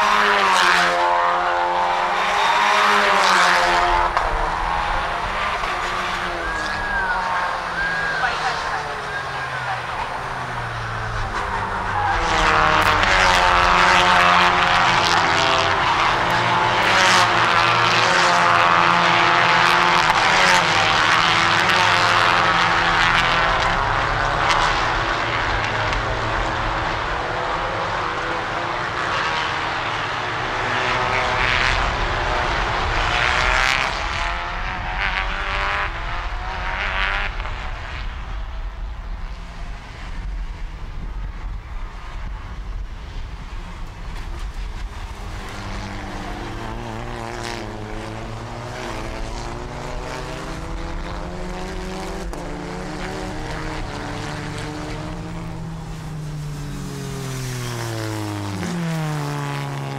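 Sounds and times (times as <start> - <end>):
race car engines passing: 0.0 - 59.9.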